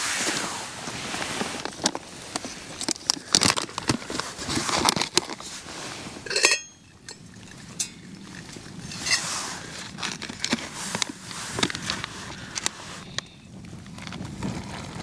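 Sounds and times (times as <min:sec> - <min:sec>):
water boiling in pot: 0:02.8 - 0:12.3
metal clinks: 0:06.2 - 0:08.0
loud metallic clink ringing: 0:06.3 - 0:07.2.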